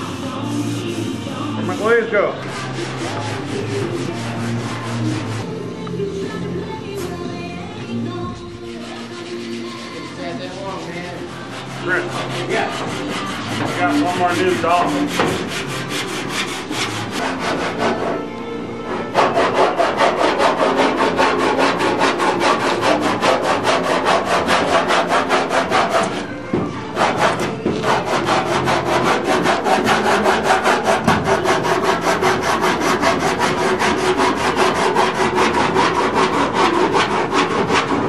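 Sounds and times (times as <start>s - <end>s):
sandpaper rubbing back and forth: 0.0s - 5.6s, 8.4s - 18.2s, 18.9s - 38.0s.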